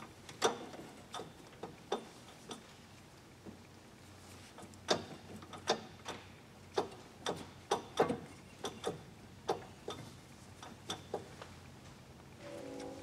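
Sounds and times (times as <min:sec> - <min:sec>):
faint low hum: 0:12.1 - 0:13.0.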